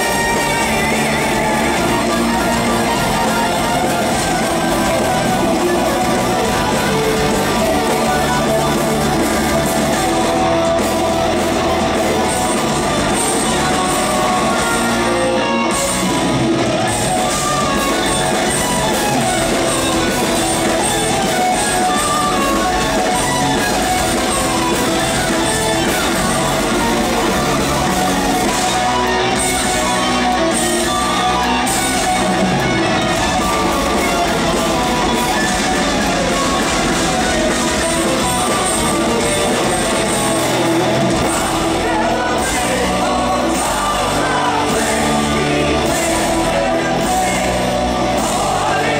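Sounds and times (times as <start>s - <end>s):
distorted electric guitars: 0.0s - 48.9s
drums: 0.0s - 48.9s.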